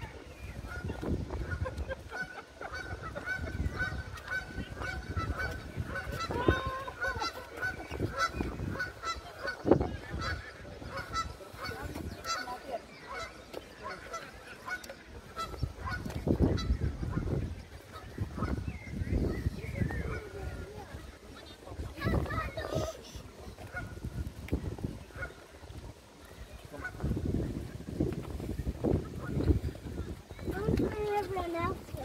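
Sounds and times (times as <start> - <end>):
geese honking: 0.1 - 25.8, 26.4 - 31.9.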